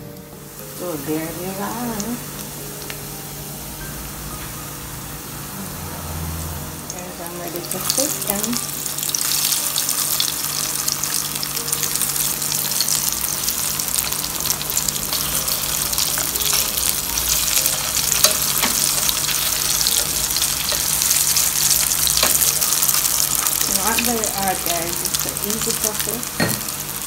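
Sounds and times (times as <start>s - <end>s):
chicken frying in hot oil: 6.1s - 27.0s.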